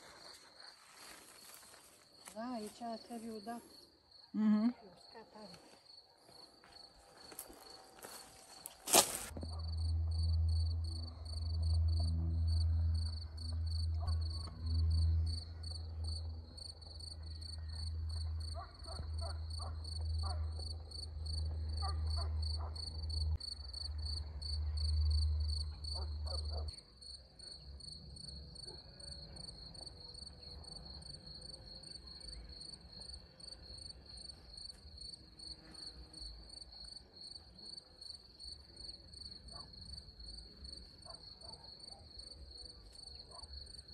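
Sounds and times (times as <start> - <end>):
insects chirping trill: 6.7 - 37.4
low rumble: 9.3 - 21.8.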